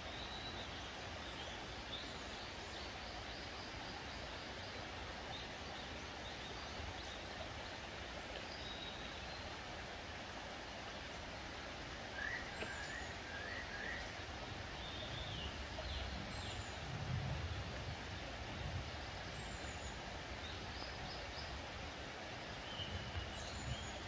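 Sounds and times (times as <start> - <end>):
outdoor background hiss: 0.0 - 24.0
whistled bird calls: 12.2 - 14.1.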